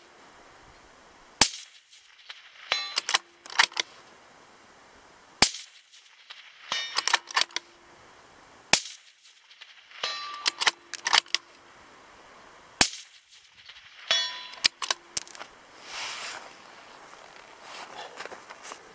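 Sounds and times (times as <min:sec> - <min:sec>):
rifle shots: 0:01.4 - 0:03.9, 0:05.4 - 0:07.8, 0:08.7 - 0:11.5, 0:12.8 - 0:15.3
rifle bolt metallic clicks: 0:02.7 - 0:03.9, 0:06.7 - 0:07.7, 0:10.0 - 0:11.6, 0:14.1 - 0:15.5.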